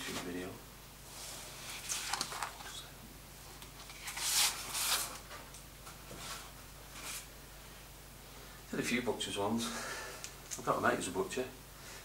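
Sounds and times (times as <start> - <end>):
paper sheets rustling and sliding: 1.2 - 2.7, 3.8 - 5.4.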